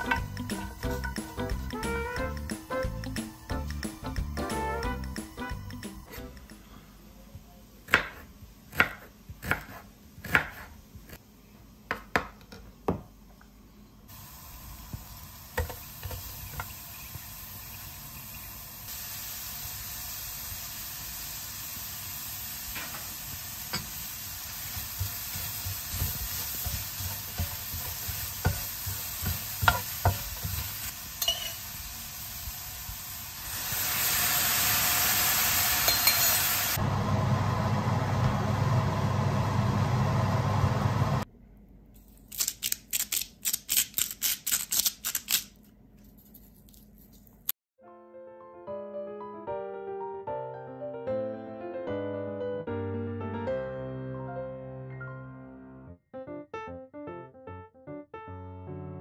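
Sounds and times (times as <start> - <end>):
vegetables sizzling in a wok: 0.0 - 4.8, 14.1 - 41.2
knife chopping on wooden board: 7.9 - 10.7, 25.0 - 30.6
sauce sizzling in hot pan: 14.1 - 36.8.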